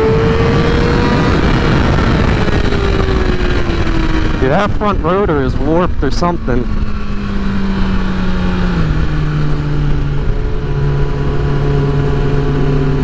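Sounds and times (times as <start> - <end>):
motorcycle engine running: 0.0 - 13.0
wind rushing: 0.0 - 13.0.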